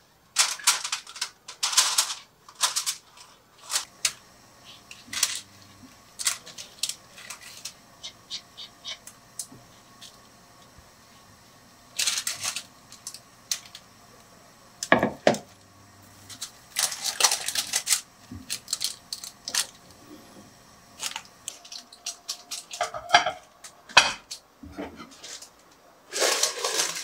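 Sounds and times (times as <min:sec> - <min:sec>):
parchment paper crinkling: 0:00.4 - 0:07.8, 0:11.9 - 0:13.9, 0:15.6 - 0:19.8, 0:25.2 - 0:27.0.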